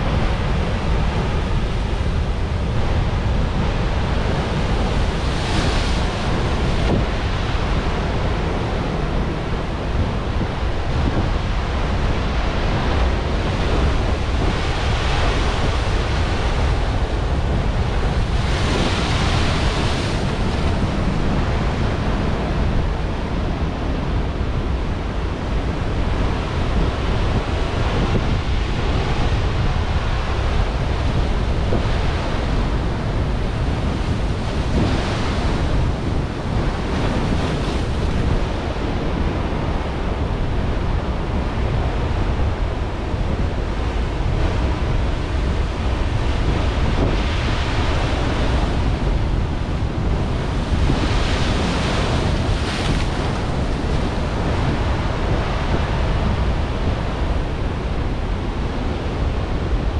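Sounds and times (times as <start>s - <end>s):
wind rumble on microphone: 0.0s - 59.9s
surf breaking on rocky shore: 42.9s - 59.1s.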